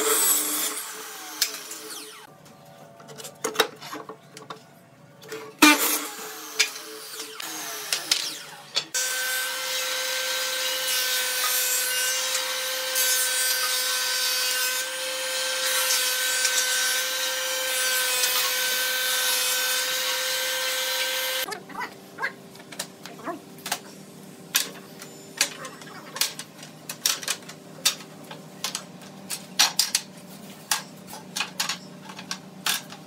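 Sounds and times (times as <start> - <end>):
woodworking machine whine: 0.0 - 2.3, 5.6 - 21.5.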